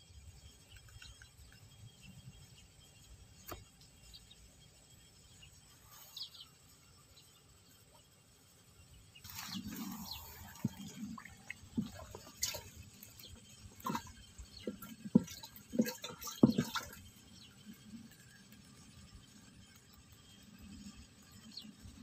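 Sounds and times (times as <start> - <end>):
water plops and splashes: 9.3 - 17.2.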